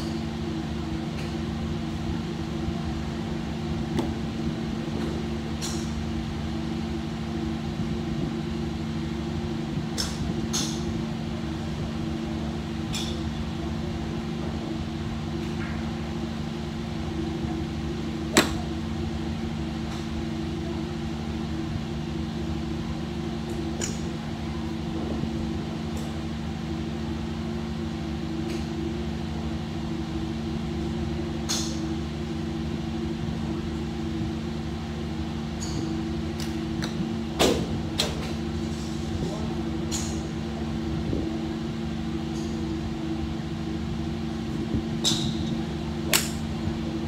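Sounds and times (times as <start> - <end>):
steady mechanical hum: 0.0 - 47.0
golf clubs striking balls: 1.1 - 1.4, 3.9 - 6.0, 9.9 - 10.9, 12.8 - 13.4, 17.9 - 19.2, 23.5 - 24.1, 31.4 - 31.9, 35.5 - 40.7, 42.3 - 42.7, 44.9 - 47.0.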